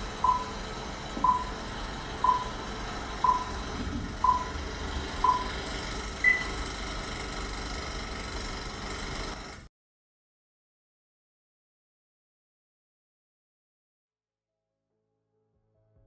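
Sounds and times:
countdown beeps: 0.2 - 0.6, 1.2 - 1.6, 2.2 - 2.6, 3.2 - 4.6, 5.2 - 5.6, 6.2 - 6.5.

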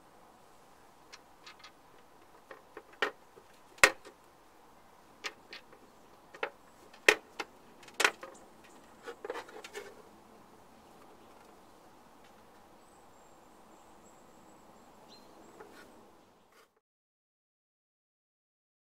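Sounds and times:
hard plastic clicks and knocks: 5.2 - 9.8.

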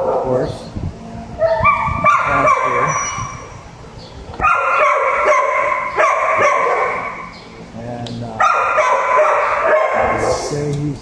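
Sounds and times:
dogs barking: 0.0 - 0.6, 1.4 - 3.7, 4.3 - 7.6, 8.3 - 10.7.

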